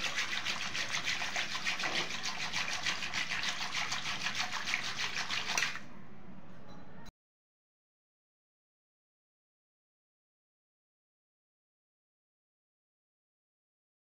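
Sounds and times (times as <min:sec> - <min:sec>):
whisk swishing cream in bowl: 0:00.0 - 0:05.9.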